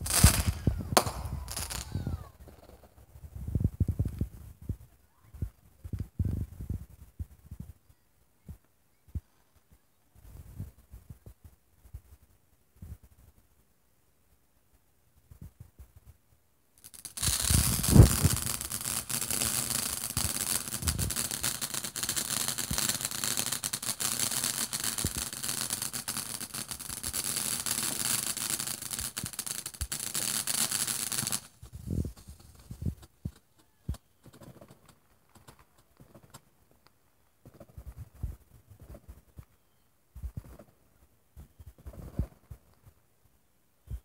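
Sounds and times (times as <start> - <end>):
firework hissing and crackling: 0.0 - 4.3, 16.8 - 33.5.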